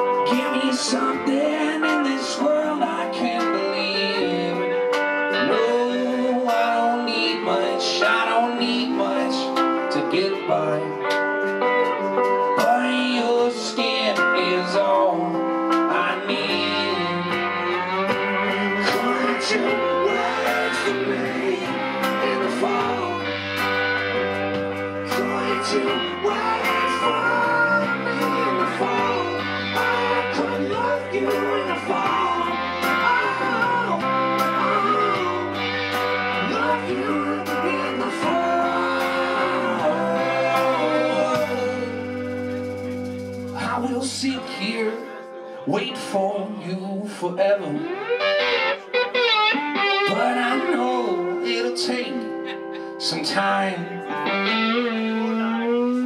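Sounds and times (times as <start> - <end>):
resonator guitar: 0.0 - 46.7, 47.4 - 56.0
bass guitar: 0.0 - 56.0
electric guitar: 0.0 - 56.0.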